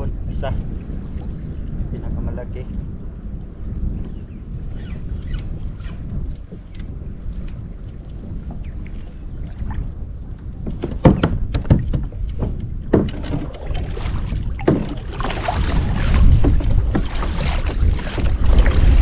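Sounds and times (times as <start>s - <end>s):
water splashing around kayak: 0.0s - 2.0s, 2.7s - 19.0s
wind buffeting microphone: 0.0s - 19.0s
sharp knocks: 10.6s - 13.6s, 14.6s - 15.1s.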